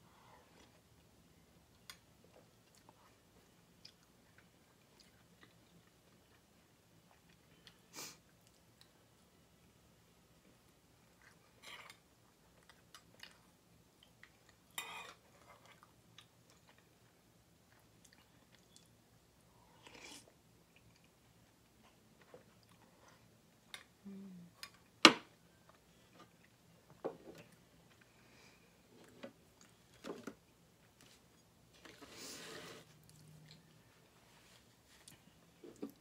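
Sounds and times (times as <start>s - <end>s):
chewing and mouth noises: 11.0s - 19.0s.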